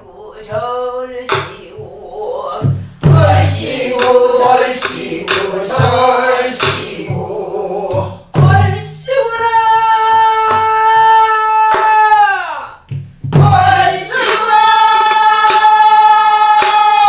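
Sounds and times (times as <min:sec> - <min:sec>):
woman singing folk song: 0:00.0 - 0:02.8
barrel drum strokes: 0:02.6 - 0:07.3.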